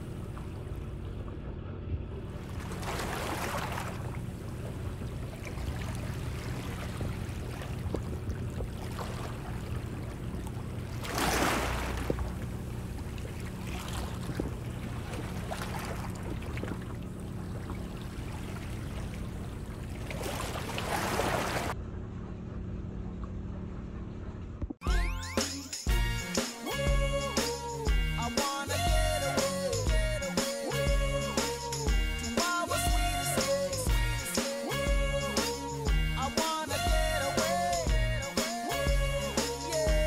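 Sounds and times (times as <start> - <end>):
water splashing against boat hull: 0.0 - 21.8
low motor hum: 0.0 - 25.2, 26.0 - 40.0.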